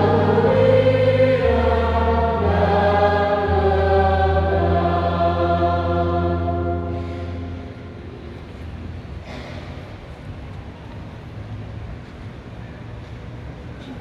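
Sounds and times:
low accompanying note: 0.0s - 8.7s
reverberant church murmur: 0.0s - 14.0s.

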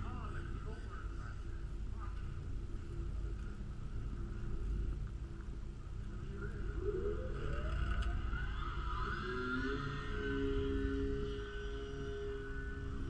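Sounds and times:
model plane motor whining: 6.8s - 13.0s.

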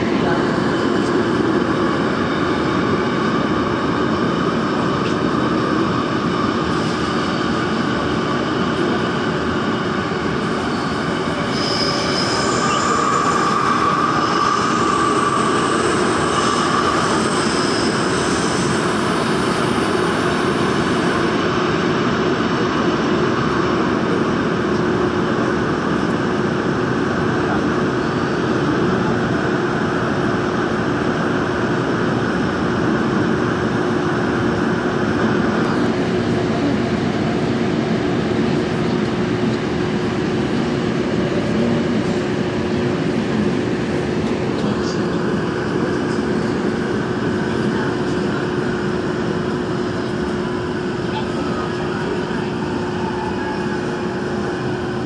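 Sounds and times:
subway train rumbling in tunnel: 0.0s - 55.0s
high squealing tone: 10.5s - 18.8s.

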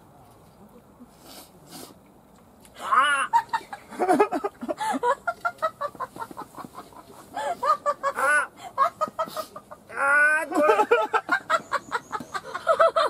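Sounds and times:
people laughing hard: 3.0s - 13.0s.

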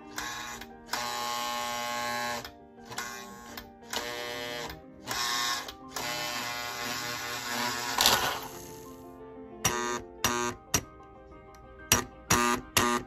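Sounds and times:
toy train motor buzzing: 0.1s - 8.7s.

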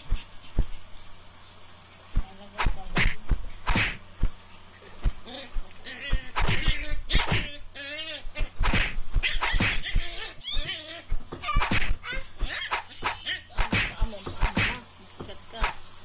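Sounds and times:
high wavering animal cries: 9.2s - 13.6s.

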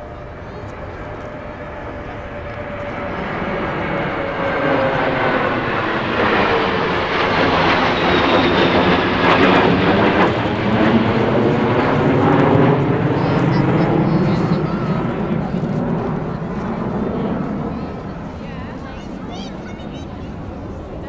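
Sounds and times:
jet engines rumbling overhead: 0.0s - 21.0s.

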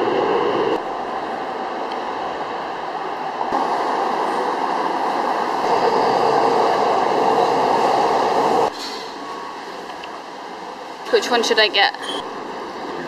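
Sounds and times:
subway train rumble: 0.0s - 13.0s.

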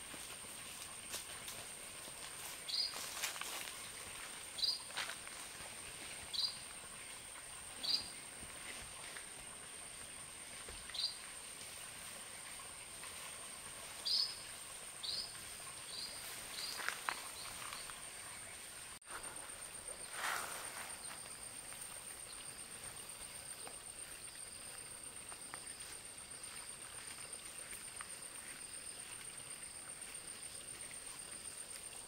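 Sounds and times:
bird chirping: 7.8s - 8.2s.

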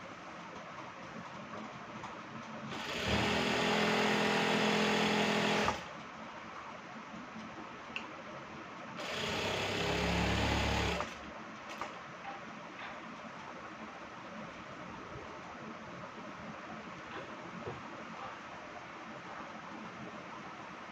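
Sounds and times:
sewing machine stitching: 2.7s - 5.9s, 9.0s - 11.9s.

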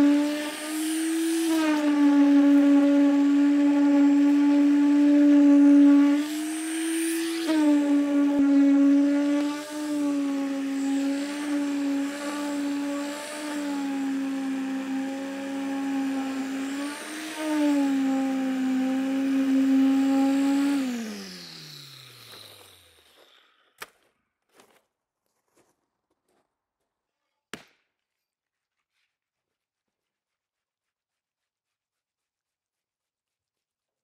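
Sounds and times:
concrete vibrator whining: 0.0s - 23.6s.

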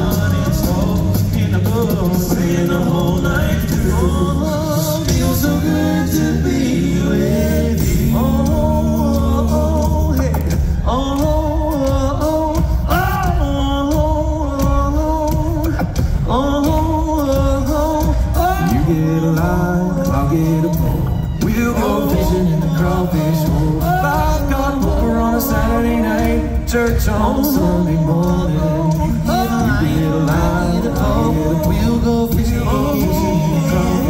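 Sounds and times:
male a cappella group singing: 0.0s - 34.0s.

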